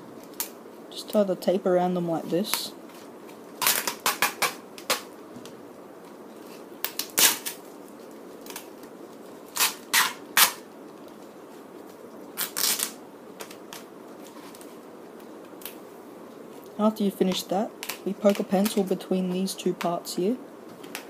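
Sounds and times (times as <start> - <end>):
sticky tape crackling and ripping: 2.4 - 5.2, 6.3 - 15.8, 16.6 - 19.0.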